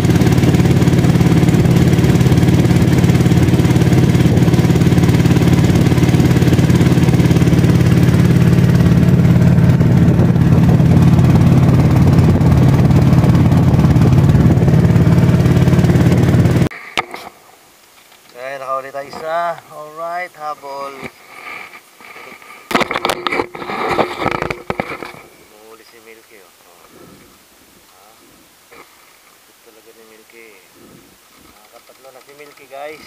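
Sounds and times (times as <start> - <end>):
boat engine running: 0.0 - 17.3, 22.0 - 25.2.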